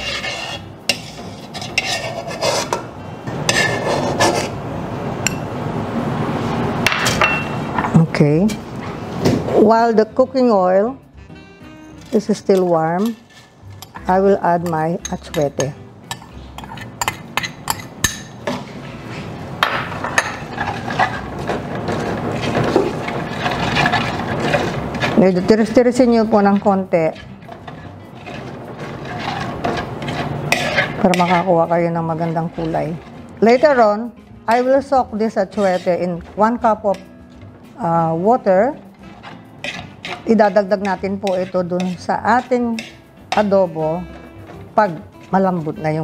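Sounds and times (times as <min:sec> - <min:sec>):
metal spoon scraping a wok: 0:00.0 - 0:04.6, 0:11.9 - 0:18.4, 0:20.2 - 0:37.6, 0:38.2 - 0:46.0.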